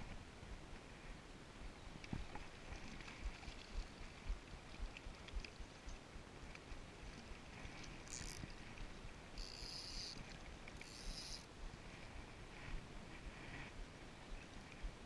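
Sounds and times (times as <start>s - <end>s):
short high hissing bursts: 9.4s - 10.2s, 10.9s - 11.5s.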